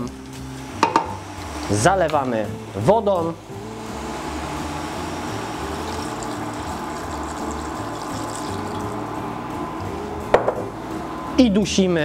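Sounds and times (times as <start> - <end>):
water pouring into a pot: 5.4 - 9.1.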